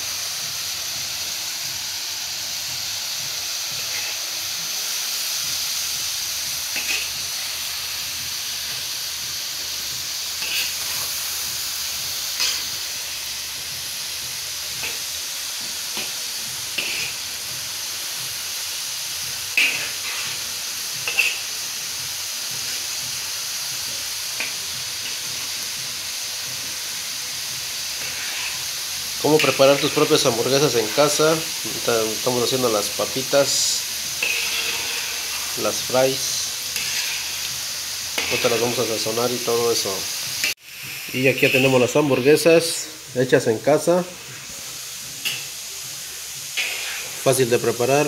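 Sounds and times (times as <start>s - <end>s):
potatoes deep-frying in oil: 0.0s - 48.0s
metal skimmer scraping pan: 34.2s - 35.5s.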